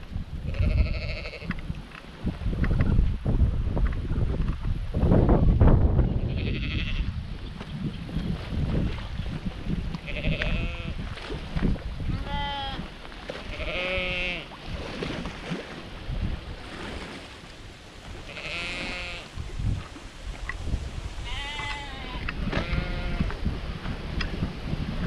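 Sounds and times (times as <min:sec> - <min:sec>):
sheep bleating: 0:00.5 - 0:01.5, 0:10.1 - 0:11.0, 0:12.2 - 0:12.8, 0:13.5 - 0:14.4, 0:18.3 - 0:19.3, 0:21.2 - 0:23.3.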